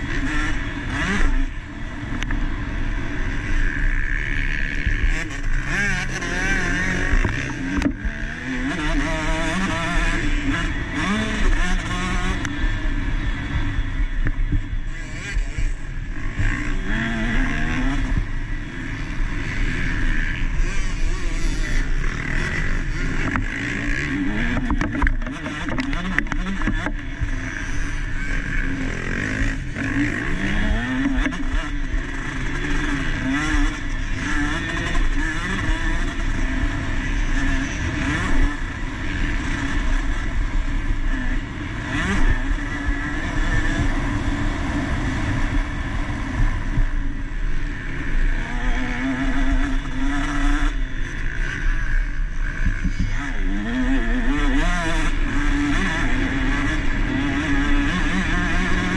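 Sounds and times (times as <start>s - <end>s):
motocross bike engine revving: 0.0s - 58.9s.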